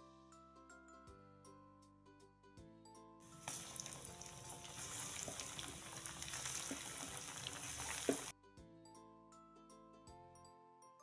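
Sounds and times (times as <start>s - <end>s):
food deep-frying in hot oil: 3.3s - 8.3s.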